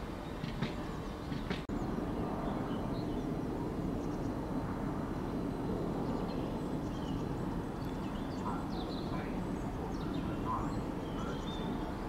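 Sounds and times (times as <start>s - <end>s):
low outdoor rumble: 0.0s - 12.0s
faint bird chirps: 6.0s - 12.0s.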